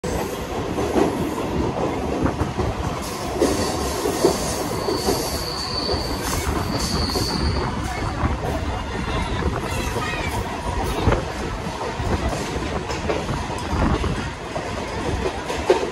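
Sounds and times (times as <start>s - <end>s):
train rumbling on track: 0.0s - 15.9s
high wheel squeal: 3.6s - 8.1s.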